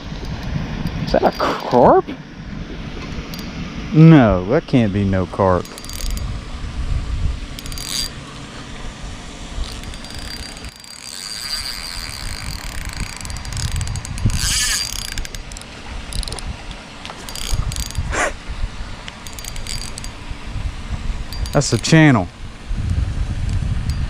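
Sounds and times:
fishing reel clicking and buzzing: 5.6s - 6.3s, 7.5s - 8.3s, 9.6s - 16.5s, 17.1s - 18.1s, 19.1s - 20.2s, 21.3s - 22.3s, 23.4s - 24.0s.

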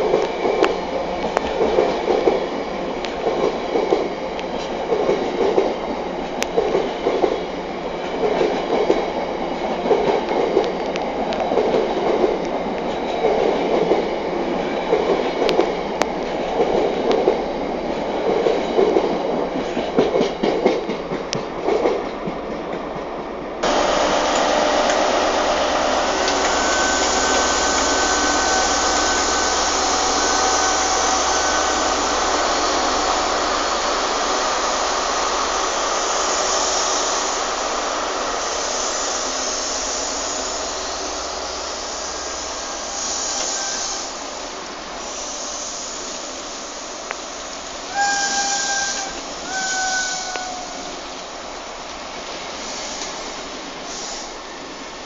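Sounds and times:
train rushing hiss: 23.6s - 55.0s.

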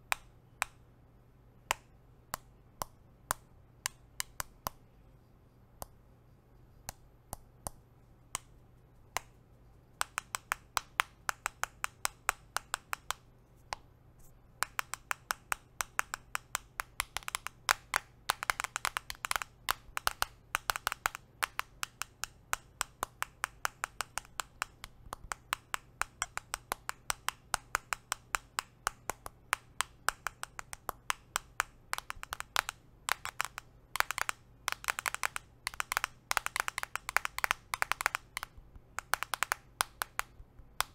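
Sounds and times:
fingernails tapping on phone: 10.0s - 13.8s, 14.6s - 40.9s.

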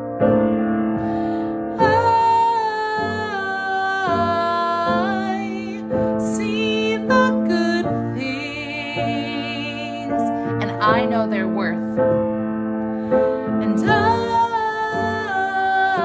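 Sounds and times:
piano accompaniment: 0.0s - 16.0s
woman singing: 1.7s - 12.0s, 13.5s - 16.0s.

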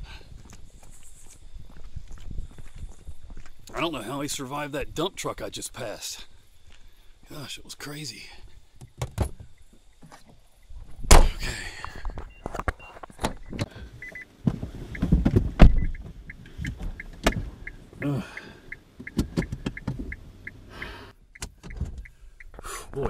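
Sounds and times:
car door thumping shut: 11.1s - 11.4s, 14.4s - 16.0s
car warning chime beeping: 13.3s - 14.3s, 14.9s - 22.6s
knocks and rustles: 14.4s - 17.5s.

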